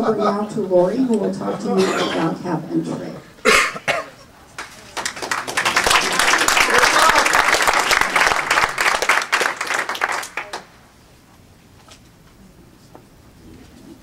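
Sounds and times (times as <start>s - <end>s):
audience applauding: 4.6s - 10.8s.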